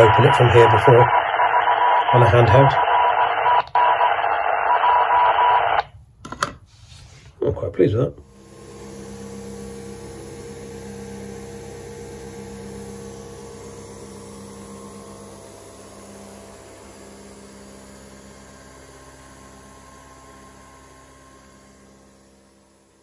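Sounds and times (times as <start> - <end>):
coffee machine pump humming: 8.2 - 23.0.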